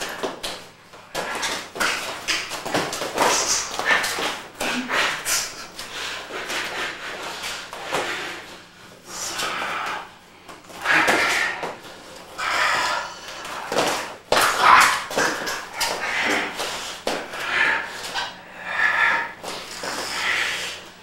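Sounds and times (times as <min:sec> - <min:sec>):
bodies thumping and slapping: 0:00.0 - 0:06.6, 0:13.4 - 0:17.4.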